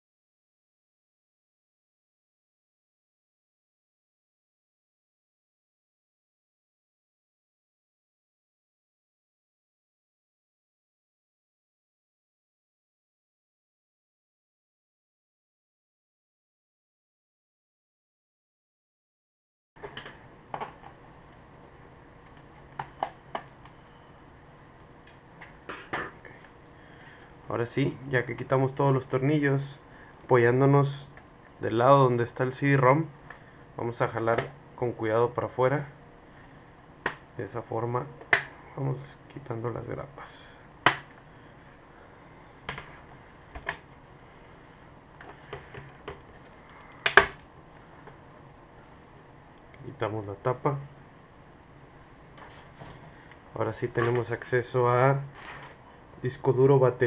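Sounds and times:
room hum: 19.8 - 57.0
plastic clips snapping loose: 46.9 - 47.4.

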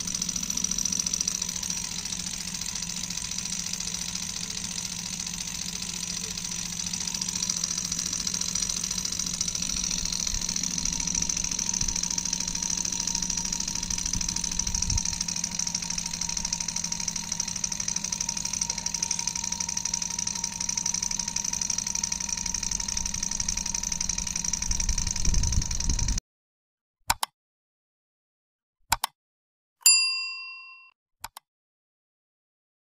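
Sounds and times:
small stirling engine ticking clatter: 0.0 - 26.2.

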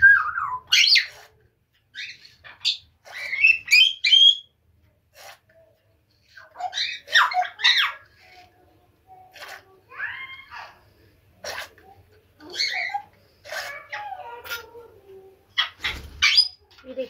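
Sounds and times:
birds chirping: 0.0 - 4.6.

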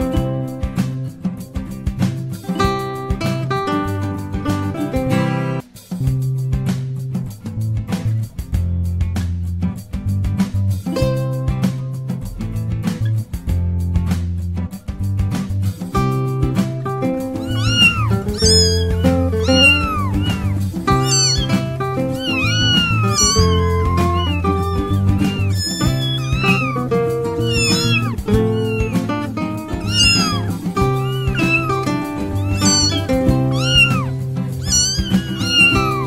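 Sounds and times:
cat meowing: 17.2 - 36.0.

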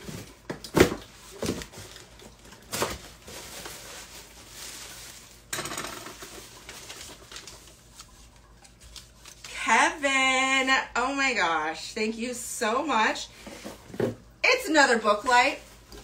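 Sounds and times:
plastic packing crinkling: 1.1 - 5.5, 6.2 - 9.6.

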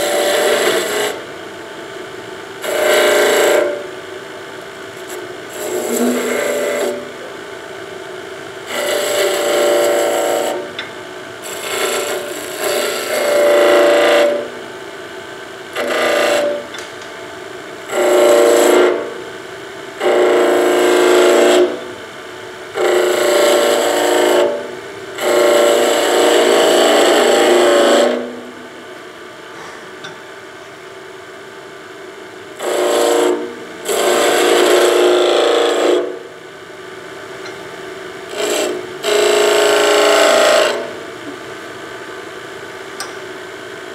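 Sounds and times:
wood lathe running: 0.0 - 1.2, 2.6 - 3.9, 5.5 - 7.2, 8.6 - 10.7, 11.4 - 14.5, 15.7 - 16.7, 17.9 - 19.1, 20.0 - 21.8, 22.8 - 28.4, 32.6 - 36.2, 38.3 - 41.0
chisel cutting spinning wood: 0.0 - 1.3, 2.6 - 3.9, 5.5 - 7.2, 8.7 - 10.8, 11.4 - 14.6, 15.8 - 16.8, 17.9 - 19.1, 20.0 - 21.8, 22.8 - 24.6, 25.2 - 28.4, 32.6 - 36.2, 38.3 - 41.0.

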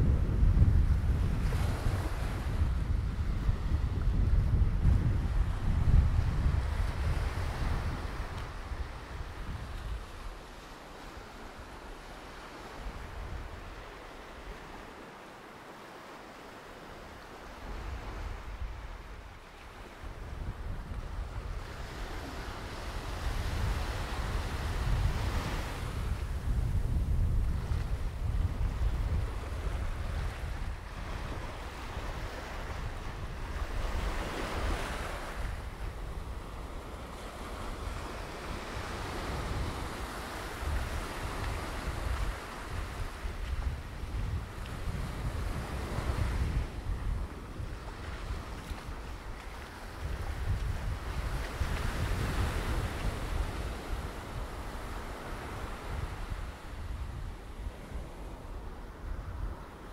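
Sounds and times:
wind rumbling on microphone: 0.0 - 15.1, 16.6 - 59.9
waves breaking on sand and rocks: 0.0 - 59.9.

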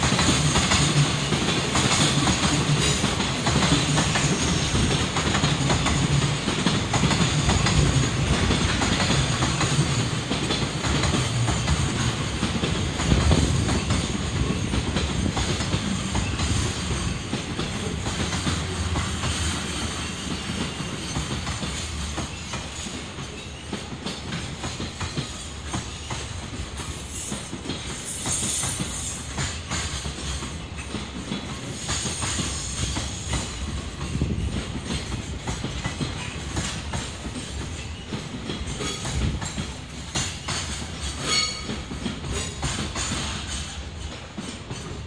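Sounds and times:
train wagons rolling on rails: 0.0 - 45.0
wheels clattering over rail joints: 0.0 - 45.0
high wheel squeal: 26.8 - 29.7.

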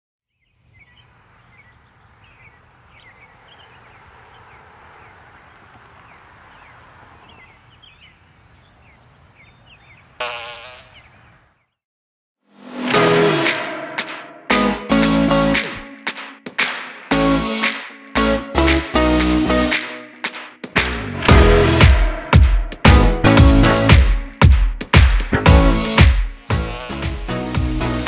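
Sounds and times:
bird chirps: 0.3 - 11.8
fly buzzing close by: 10.2 - 11.3, 25.7 - 28.0.

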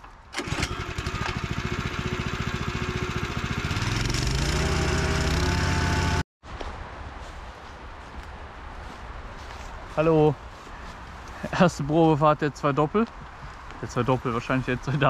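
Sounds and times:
small petrol engine revving: 0.4 - 6.2.

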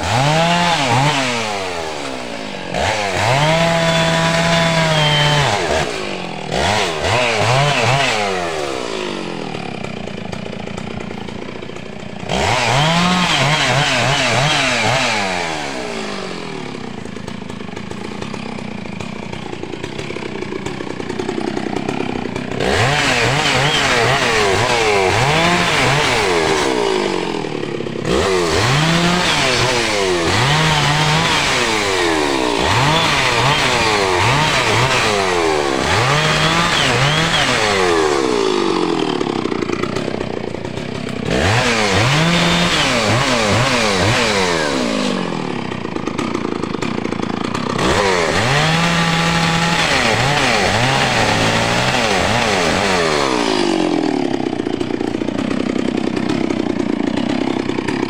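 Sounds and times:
chainsaw cutting log: 0.0 - 58.0.

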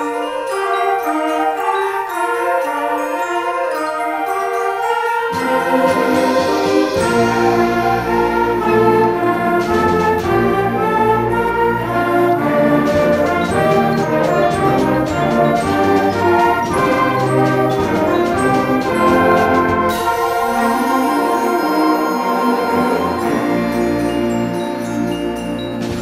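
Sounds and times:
concert band playing: 5.3 - 26.0.

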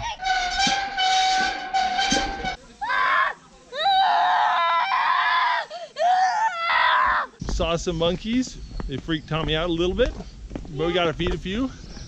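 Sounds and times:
child screaming: 2.8 - 7.4.

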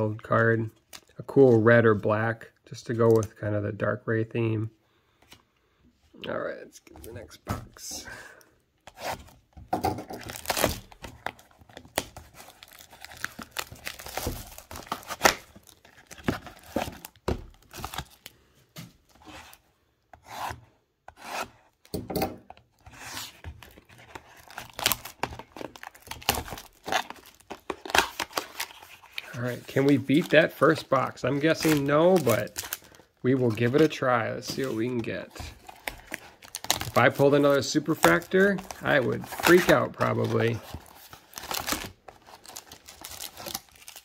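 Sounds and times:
shrink wrap crinkling and tearing: 10.2 - 18.4, 22.9 - 44.0.

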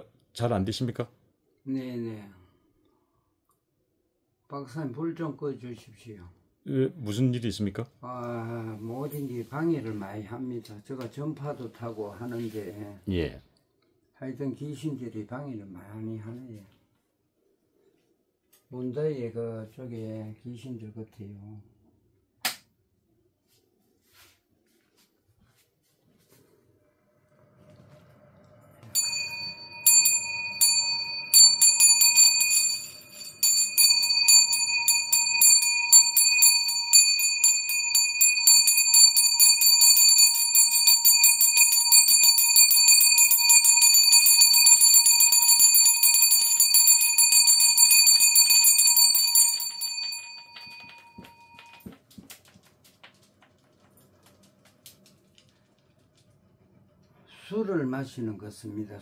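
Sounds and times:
bell shaken rapidly: 29.0 - 51.9.

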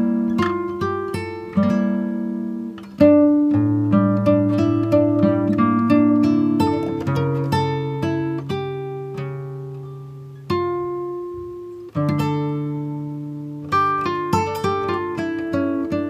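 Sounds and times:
acoustic guitar: 0.0 - 16.0.

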